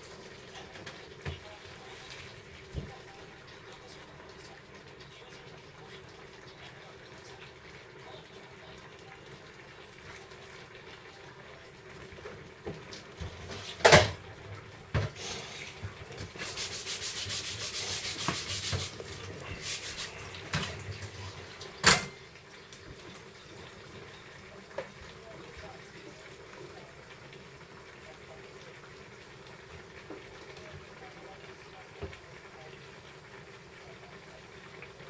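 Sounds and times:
rubbing or scraping: 16.2s - 20.2s.

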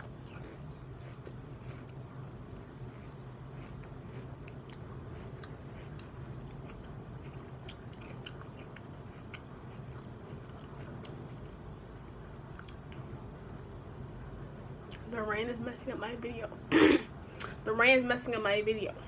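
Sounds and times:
chewing with wet mouth clicks: 0.0s - 13.8s.

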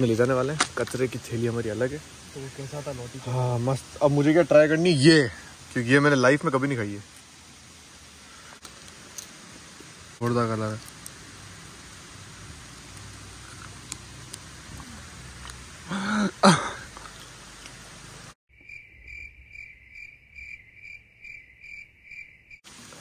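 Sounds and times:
outdoor hiss: 0.0s - 18.4s, 22.5s - 23.0s
vocal outburst: 14.7s - 17.2s
cricket chirping: 18.5s - 22.6s.

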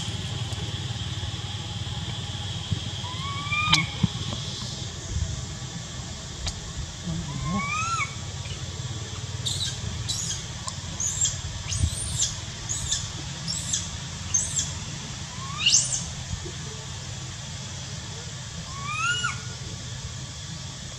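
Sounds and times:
animal squeal sweeping upward: 3.1s - 4.0s, 7.2s - 8.2s, 18.7s - 19.5s
high-pitched animal chirps: 3.1s - 4.0s, 7.3s - 8.2s.

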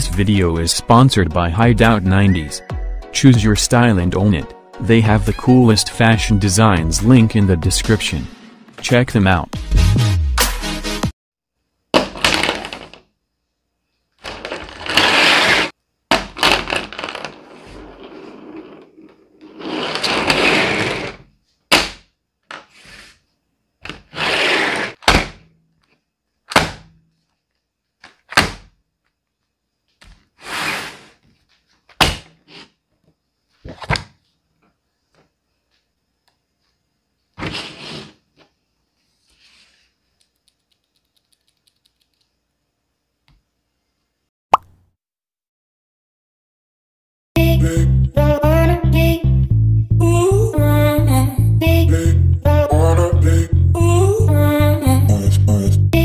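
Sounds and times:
rustling scrapes: 14.3s - 15.8s, 16.9s - 21.2s, 22.7s - 23.2s, 24.0s - 25.0s, 30.4s - 31.7s, 37.4s - 40.0s.

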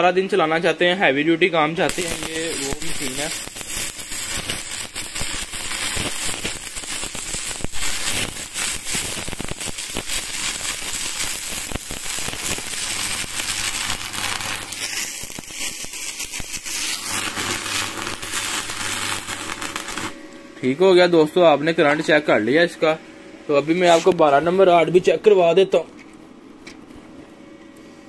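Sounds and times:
welding arc crackling: 1.9s - 21.2s.

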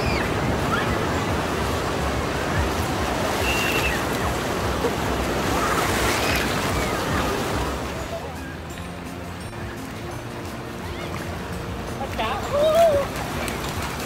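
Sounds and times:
surf breaking in shallow water: 0.0s - 8.3s.

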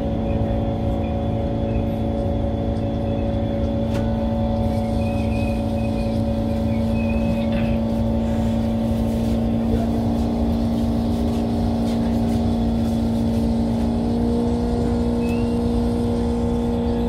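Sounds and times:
train running hum and rumble: 0.0s - 17.0s
faint high squeal: 3.0s - 7.9s.

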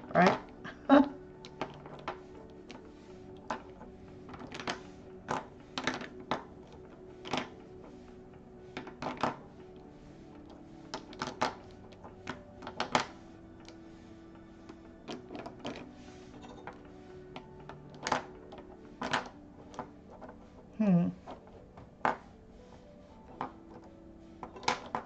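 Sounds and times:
plastic pens clicking together: 10.9s - 13.8s, 17.9s - 20.3s, 23.3s - 25.0s.

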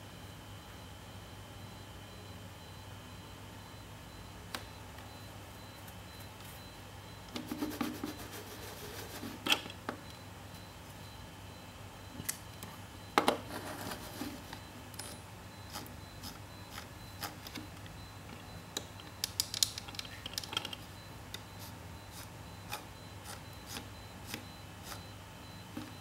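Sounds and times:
plastic mouse clicks and rattles: 19.2s - 20.8s.

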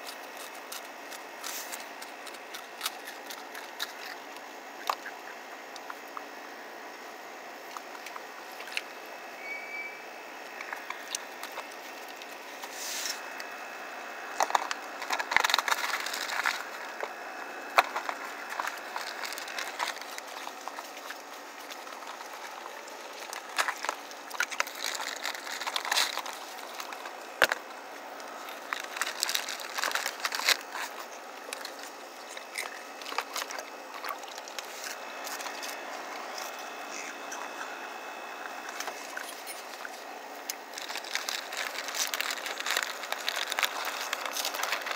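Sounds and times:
crackers crunching: 0.0s - 9.5s, 10.3s - 44.9s
steady background noise: 0.0s - 44.9s
plastic tarp crinkling: 14.4s - 36.6s, 40.6s - 44.9s.

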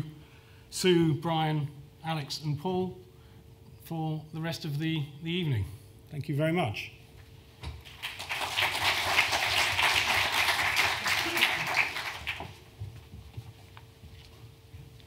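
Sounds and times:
audience applauding: 7.9s - 12.7s.

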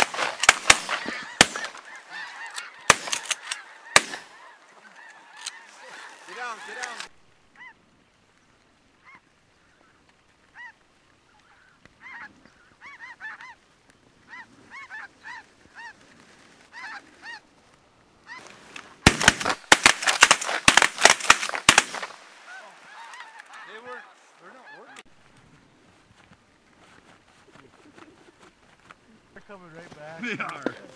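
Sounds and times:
shotgun shots: 0.0s - 1.8s, 2.9s - 4.4s, 19.0s - 22.4s
geese honking: 0.0s - 7.8s, 9.0s - 13.7s, 14.3s - 16.0s, 16.6s - 17.5s, 18.2s - 18.6s, 19.2s - 25.1s.

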